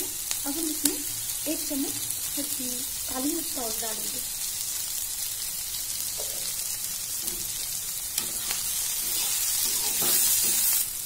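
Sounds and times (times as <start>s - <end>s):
vegetables sizzling in a pan: 0.0s - 11.0s
metal spatula scraping: 8.2s - 10.9s.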